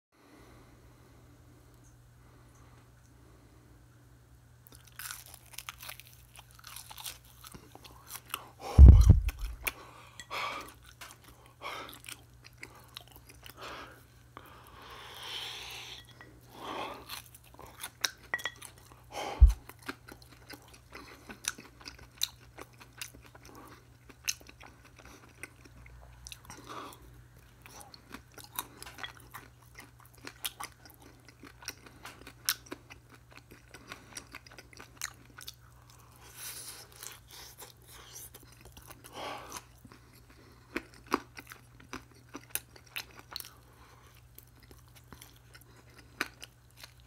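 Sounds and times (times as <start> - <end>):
chewing crunchy food: 4.6 - 47.0
loud thump: 8.8 - 9.4.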